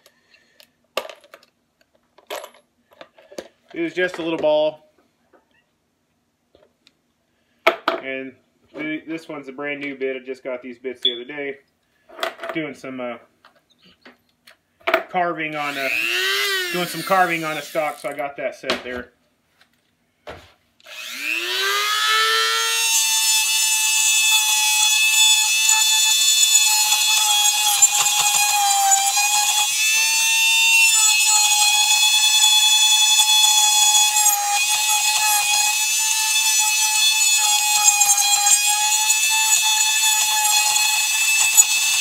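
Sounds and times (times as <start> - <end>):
rotary tool whining: 15.6 - 18.1, 20.8 - 42.0.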